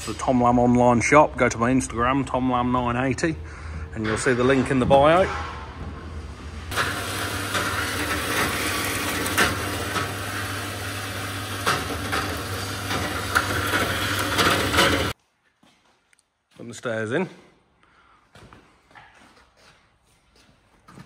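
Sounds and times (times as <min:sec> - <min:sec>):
bandsaw cutting metal: 0:06.7 - 0:15.2.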